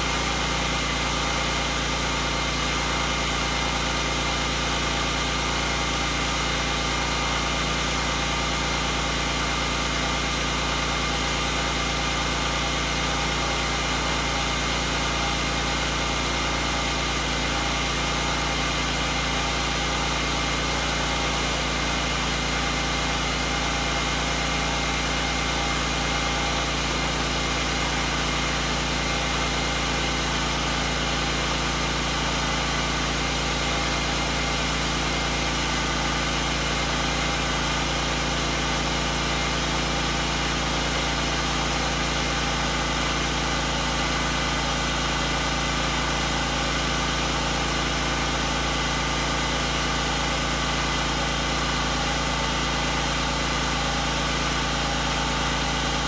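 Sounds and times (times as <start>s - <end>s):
spray hissing: 0.0s - 9.5s, 17.4s - 22.3s, 23.0s - 28.8s
pressure washer engine drone: 0.0s - 56.0s.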